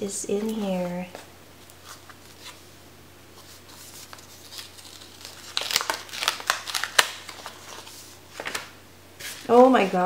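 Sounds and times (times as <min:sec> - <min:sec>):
paper wrapping rustling: 0:01.6 - 0:02.7, 0:03.3 - 0:09.9.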